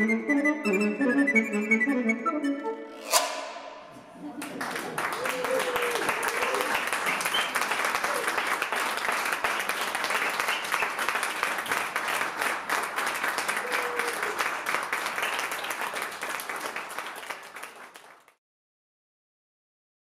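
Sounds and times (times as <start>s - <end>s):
audience applauding: 4.2s - 18.4s.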